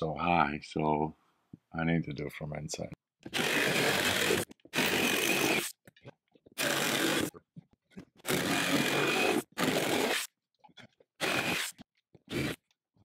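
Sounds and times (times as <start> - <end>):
electric jigsaw cutting metal sheet: 3.3 - 5.7, 6.6 - 7.3, 8.2 - 10.3, 11.2 - 12.6.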